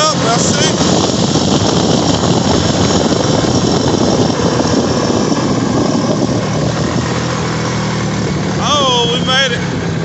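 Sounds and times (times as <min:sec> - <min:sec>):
atv engine running under load: 0:00.0 - 0:10.0
dense rushing noise: 0:00.0 - 0:10.0.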